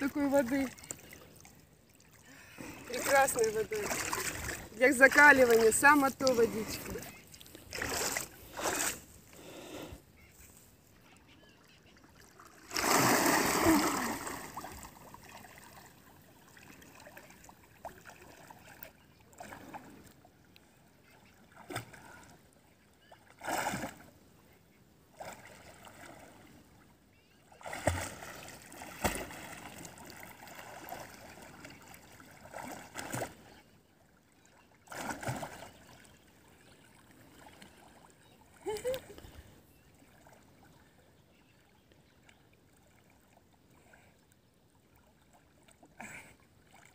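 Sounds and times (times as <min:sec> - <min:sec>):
water splashing from wading: 0:00.0 - 0:09.6, 0:11.6 - 0:20.2, 0:21.0 - 0:22.4, 0:23.1 - 0:24.1, 0:25.1 - 0:26.5, 0:27.5 - 0:33.6, 0:34.2 - 0:39.2
big water splash: 0:12.6 - 0:14.9
swimming stroke splashes: 0:12.6 - 0:15.9, 0:27.6 - 0:33.5, 0:34.9 - 0:36.0.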